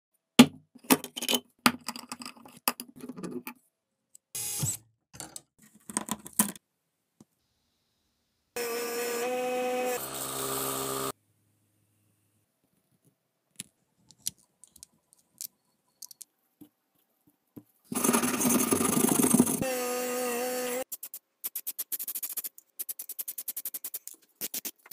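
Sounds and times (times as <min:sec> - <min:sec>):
metal parts clicking and clinking: 0:13.6 - 0:16.3.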